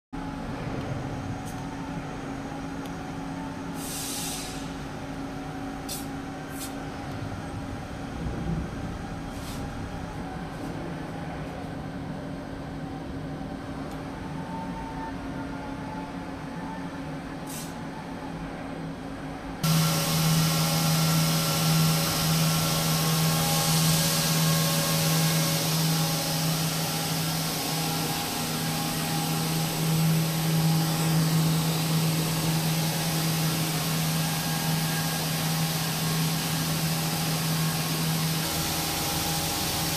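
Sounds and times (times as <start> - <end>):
machinery humming: 0.2 - 39.9
short hisses: 3.8 - 4.8.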